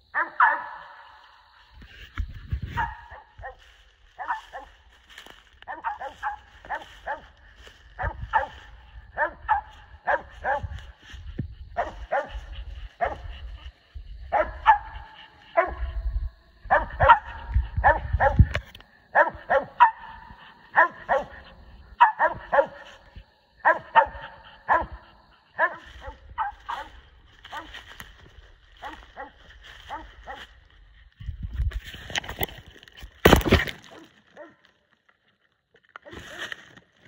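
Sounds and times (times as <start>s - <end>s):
dogs barking: 0.1s - 1.7s, 2.7s - 30.6s.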